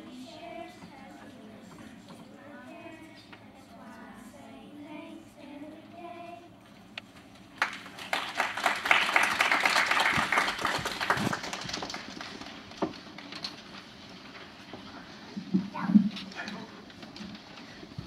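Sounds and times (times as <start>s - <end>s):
child singing: 0.0s - 6.6s
congregation clapping: 7.6s - 13.8s.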